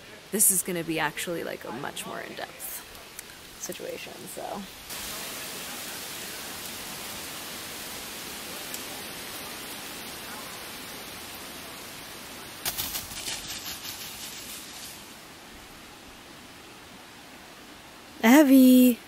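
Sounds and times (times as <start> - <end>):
river rushing: 1.6 - 18.2
rapid crackling clicks: 12.6 - 15.0.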